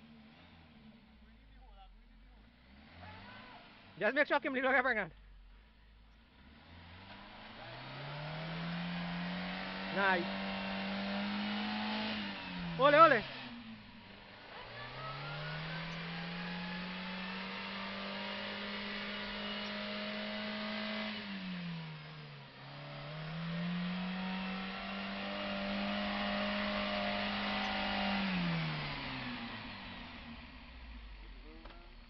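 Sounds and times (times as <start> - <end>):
off-road vehicle engine revving: 0.0 - 32.0.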